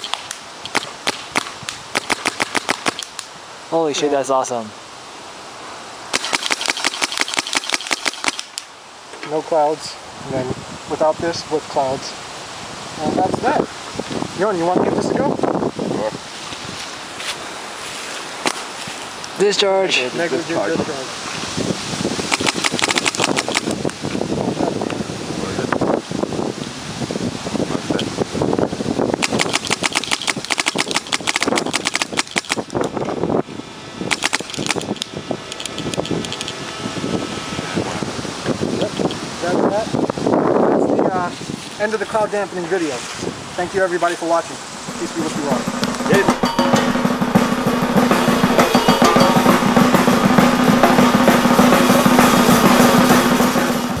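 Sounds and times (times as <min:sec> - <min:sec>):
paintball marker rapid firing: 0:00.0 - 0:03.2, 0:06.1 - 0:08.6, 0:22.3 - 0:23.8, 0:29.2 - 0:32.8, 0:34.1 - 0:35.0
wind buffeting microphone: 0:09.7 - 0:17.1, 0:20.1 - 0:48.4
music with fast drumming: 0:44.9 - 0:54.0.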